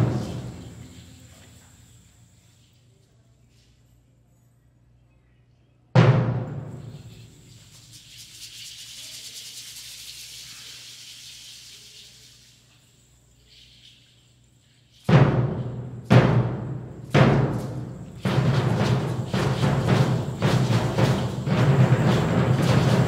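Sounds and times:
soft high shaking: 0:06.7 - 0:23.0
deep drum boom: 0:15.1 - 0:23.0.

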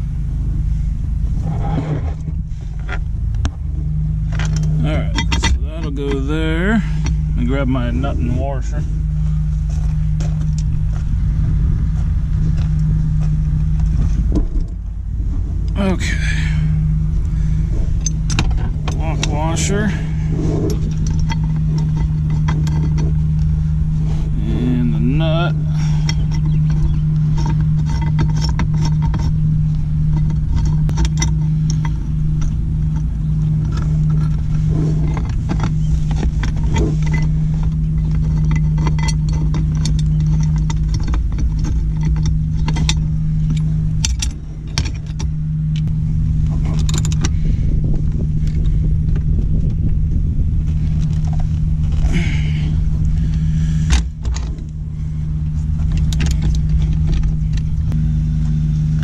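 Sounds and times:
diesel engine idling: 0:00.0 - 0:59.0
metallic clinks of nut threading: 0:20.6 - 0:23.6, 0:25.6 - 0:45.9.

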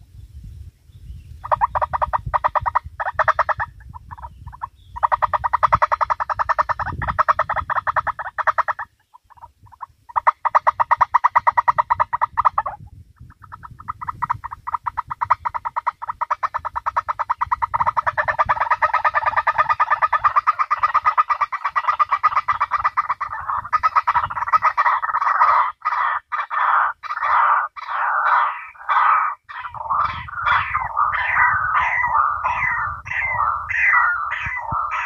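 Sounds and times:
bird call through loudspeaker: 0:23.4 - 0:35.0.

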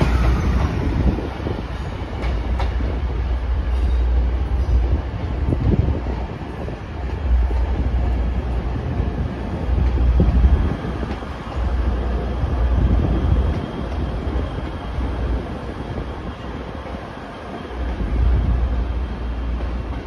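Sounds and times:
diesel train engine rumble: 0:00.0 - 0:20.0
train wheels clacking over rail joints: 0:01.9 - 0:03.0.

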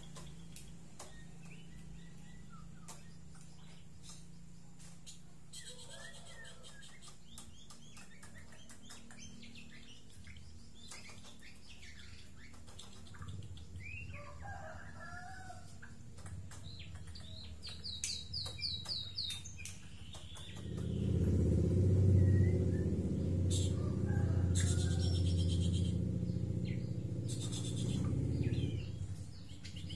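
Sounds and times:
bird chirps and whistles: 0:27.2 - 0:28.1.

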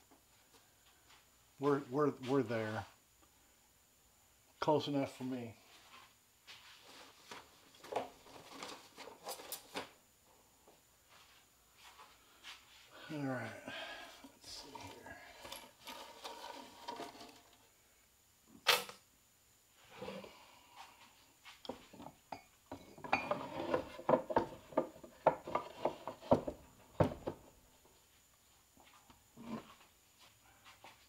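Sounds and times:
metal shims sliding: 0:14.4 - 0:17.6.

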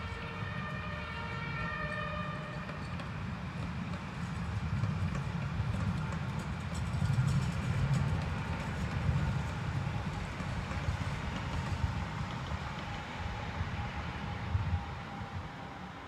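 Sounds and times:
tram rumbling on rails: 0:00.0 - 0:16.0.

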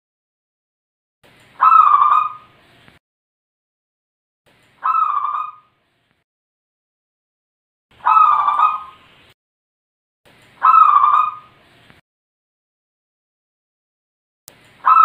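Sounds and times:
dove cooing: 0:08.0 - 0:09.0.

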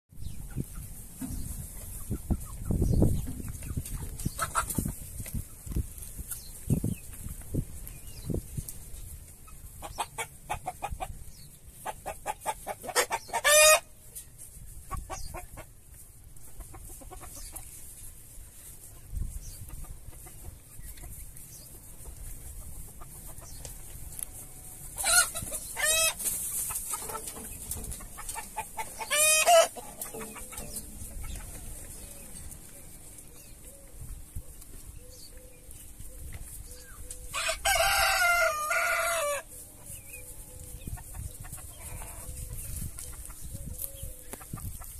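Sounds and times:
hens clucking: 0:00.2 - 0:44.9
rooster crowing: 0:37.3 - 0:39.4.

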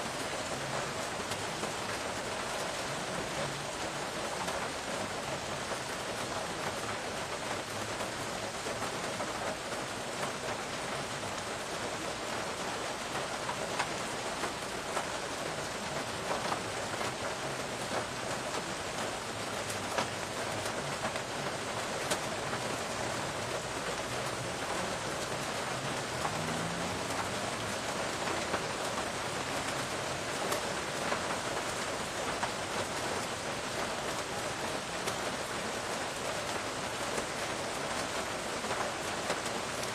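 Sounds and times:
steady rain hiss: 0:00.0 - 0:39.9
raindrop ticking close by: 0:00.1 - 0:39.9.

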